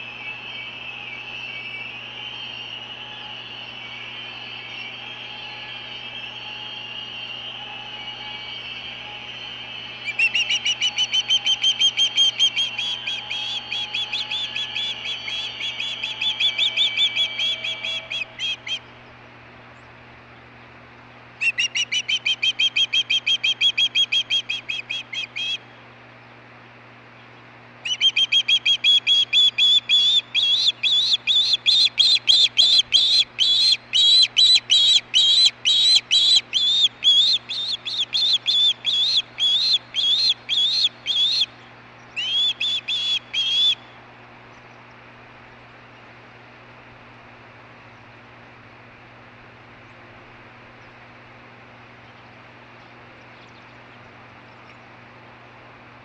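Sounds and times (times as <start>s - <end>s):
osprey piping chirps: 0.0s - 19.2s, 21.4s - 25.6s, 27.8s - 43.8s.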